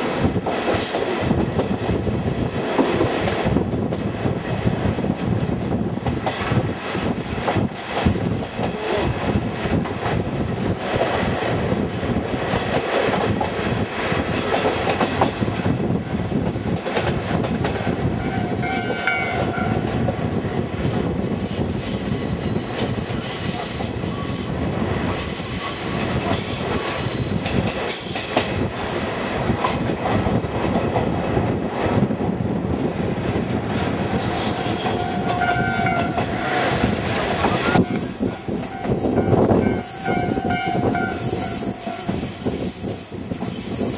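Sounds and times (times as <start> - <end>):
train rolling on rails: 0.0 - 43.9
train horn: 18.2 - 19.9, 34.9 - 36.7, 38.6 - 42.3.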